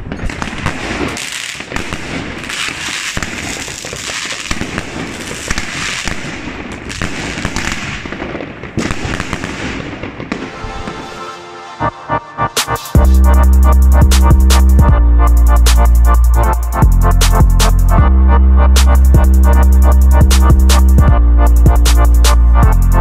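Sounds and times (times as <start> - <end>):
fireworks launch and burst reports: 0.0 - 13.0
electronic music: 10.4 - 23.0.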